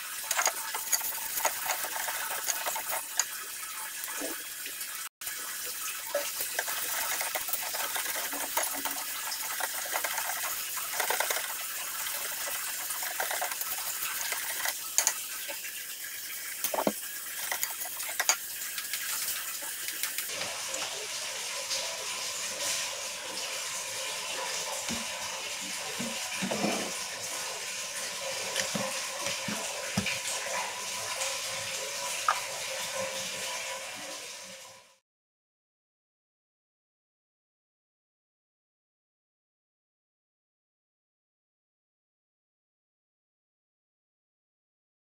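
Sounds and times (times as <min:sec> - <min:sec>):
whisk clicking against metal: 0:00.2 - 0:03.3, 0:06.4 - 0:15.2, 0:16.7 - 0:20.3
whisk stirring thick syrup: 0:00.2 - 0:03.4, 0:06.1 - 0:15.1, 0:16.7 - 0:20.3.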